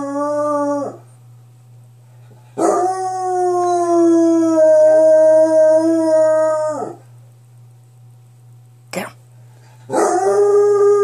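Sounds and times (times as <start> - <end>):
dog howling: 0.0 - 1.1, 2.6 - 7.1, 9.9 - 11.0
faint low hum: 0.0 - 11.0.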